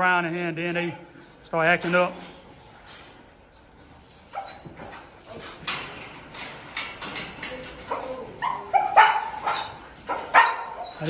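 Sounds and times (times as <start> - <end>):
dogs whining and barking: 3.6 - 11.0.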